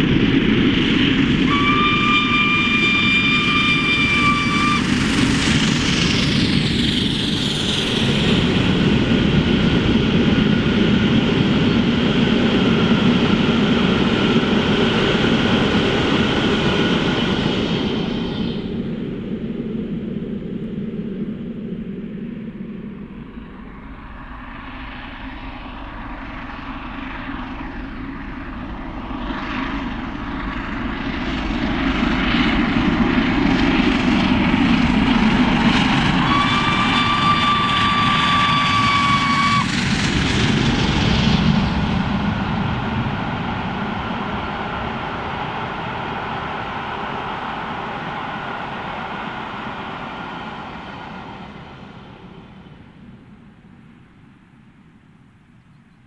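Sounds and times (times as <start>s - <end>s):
train coaches rumbling: 0.0s - 20.0s, 22.6s - 54.6s
steam locomotive exhaust beats: 0.0s - 55.5s
steam whistle: 1.4s - 5.3s, 36.1s - 39.8s.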